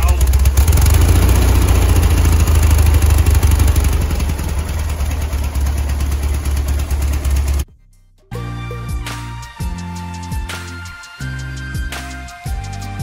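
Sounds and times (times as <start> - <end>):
car engine idling: 0.0 - 7.6.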